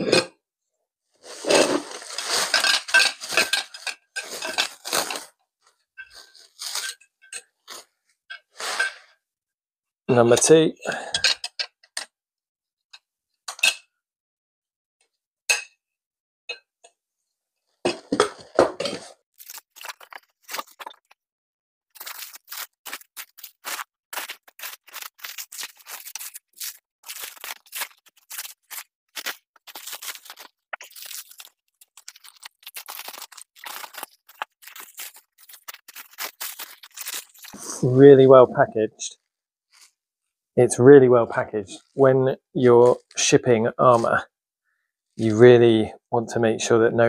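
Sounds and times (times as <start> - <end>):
plastic wrap crackling and tearing: 1.3 - 5.3, 6.2 - 7.0, 19.3 - 21.2, 21.9 - 37.6.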